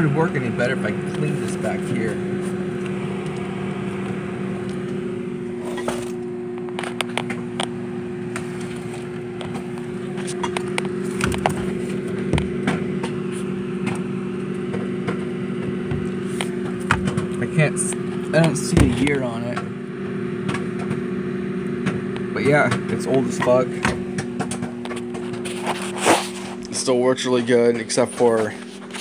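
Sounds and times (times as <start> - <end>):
appliance electrical hum: 0.0 - 29.0.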